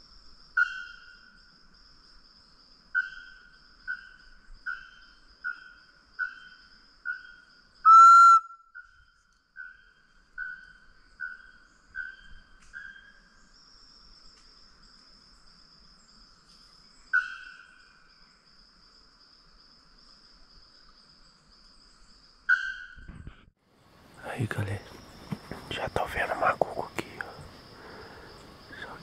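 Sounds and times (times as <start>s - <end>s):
high insect drone: 0.0s - 22.5s, 23.8s - 29.0s
whistled bird call notes: 7.1s - 9.8s, 22.5s - 23.1s.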